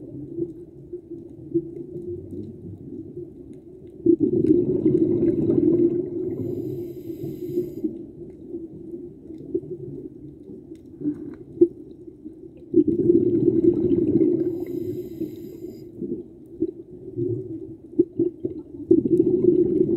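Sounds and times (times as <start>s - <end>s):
underwater breath bubbling: 4.1s - 8.0s, 12.7s - 16.3s, 18.2s - 19.9s.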